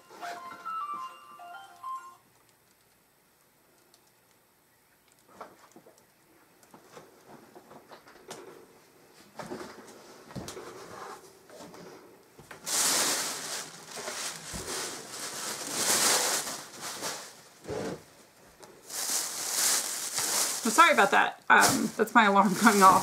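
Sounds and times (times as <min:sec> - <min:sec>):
plastic bag rustling: 0:12.4 - 0:23.0.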